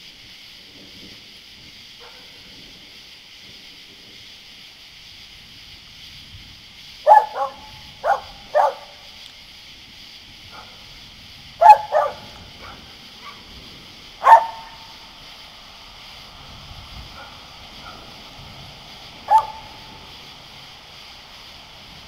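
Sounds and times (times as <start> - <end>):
dog barking: 2.0 - 2.5, 7.0 - 9.0, 10.5 - 10.8, 11.6 - 13.5, 14.2 - 14.9, 17.1 - 18.1, 19.2 - 19.9.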